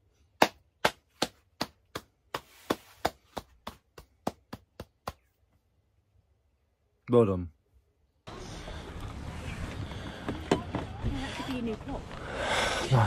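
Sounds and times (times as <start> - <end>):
man clapping hands: 0.4 - 5.3.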